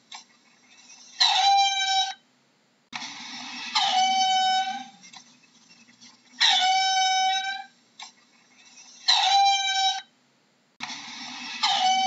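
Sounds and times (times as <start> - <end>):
meerkat calling: 6.4 - 7.7, 8.7 - 10.1.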